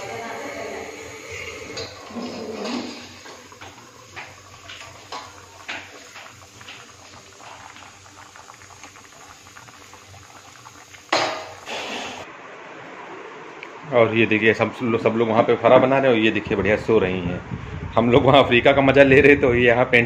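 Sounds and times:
water boiling and bubbling: 0:00.0 - 0:12.3.

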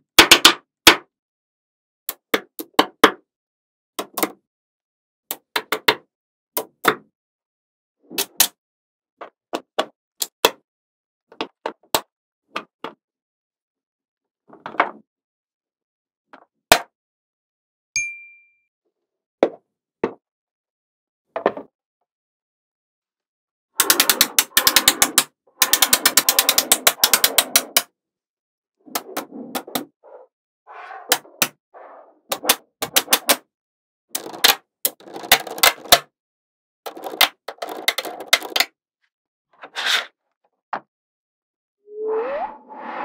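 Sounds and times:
magnetic balls clicking together: 0:34.2 - 0:36.0.

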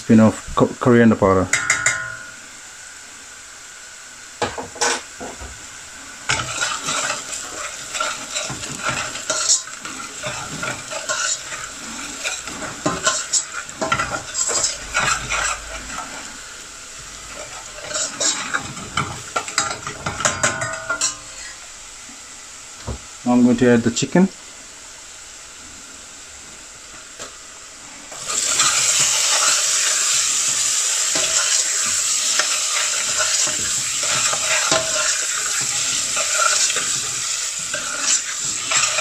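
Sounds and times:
hot oil sizzling: 0:00.0 - 0:39.0
metal spoon scraping saucepan: 0:17.8 - 0:21.2.

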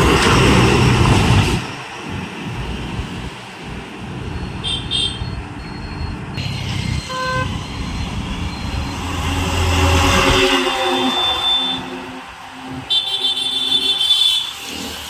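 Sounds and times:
road traffic noise: 0:00.0 - 0:15.0
truck diesel engine passing: 0:00.0 - 0:15.0
horn toot: 0:07.0 - 0:07.7.

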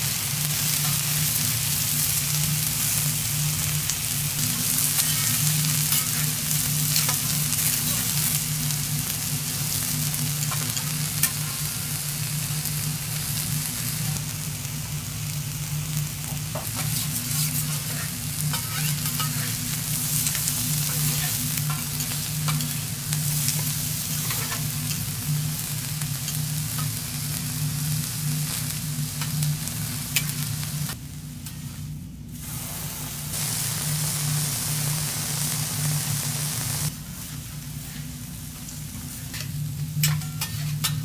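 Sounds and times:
beef sizzling on griddle: 0:00.0 - 0:31.0, 0:32.4 - 0:41.0
metal spatulas scraping: 0:16.8 - 0:19.6, 0:39.3 - 0:41.0.

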